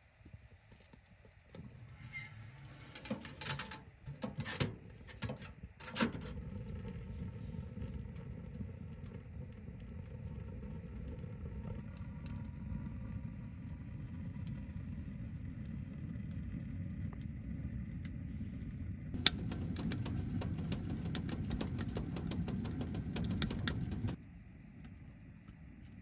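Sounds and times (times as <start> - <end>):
steady low rumble: 6.2 - 25.3.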